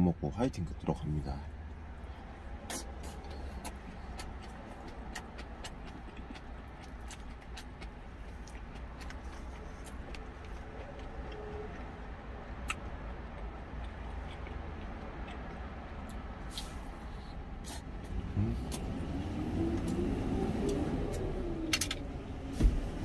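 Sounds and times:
chewing and lip smacks: 1.6s - 19.0s.

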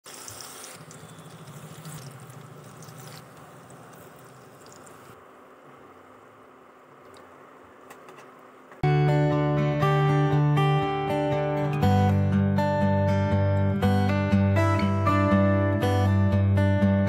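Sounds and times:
batter frying in hot oil: 0.0s - 5.2s.

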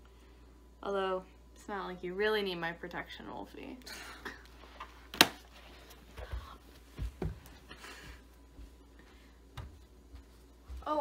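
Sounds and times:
barefoot footsteps on carpet: 5.6s - 11.0s.

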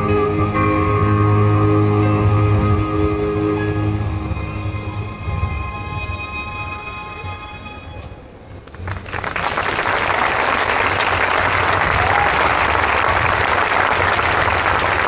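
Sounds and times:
audience applause: 8.6s - 15.0s.

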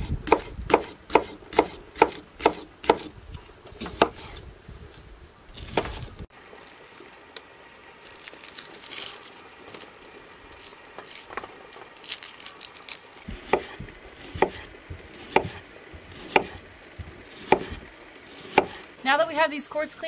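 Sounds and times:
knife slicing onion on board: 0.0s - 3.1s, 13.3s - 16.6s, 17.3s - 18.9s.

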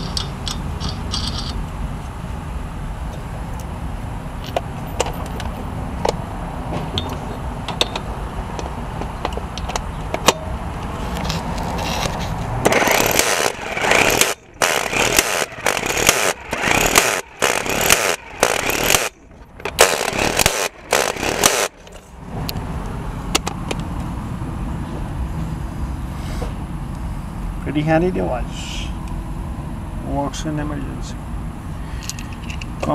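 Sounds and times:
impact wrench bursts: 0.0s - 1.6s, 11.8s - 22.0s.

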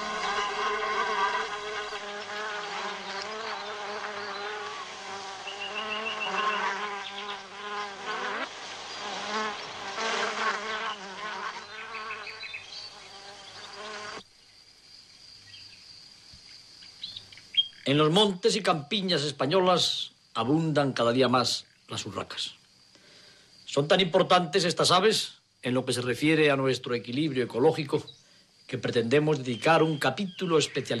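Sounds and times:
honeybees buzzing: 0.0s - 14.2s.

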